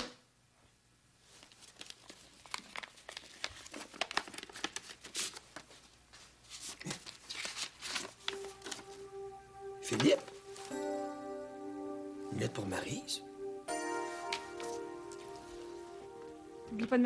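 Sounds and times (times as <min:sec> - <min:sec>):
paper envelopes rustling: 0:01.2 - 0:09.0.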